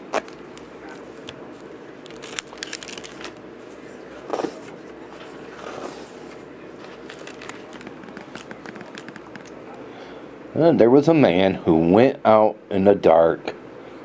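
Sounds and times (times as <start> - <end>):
book pages rustling and turning: 0.0 - 9.5
small taps and clicks: 7.8 - 9.6.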